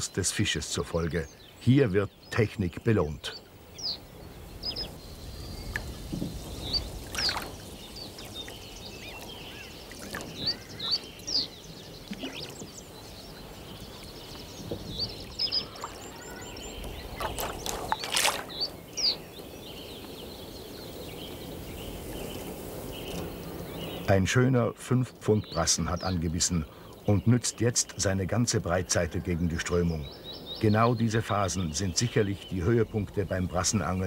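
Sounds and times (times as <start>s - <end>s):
birds chirping: 0.0s - 34.0s
fish splashing at water surface: 17.2s - 18.6s.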